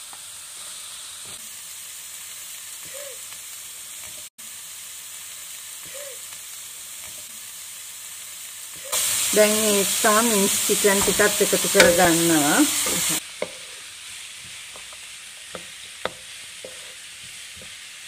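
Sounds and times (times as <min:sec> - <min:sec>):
vegetables sizzling in oil: 0:00.0 - 0:18.0
spatula scraping wok: 0:08.9 - 0:18.0.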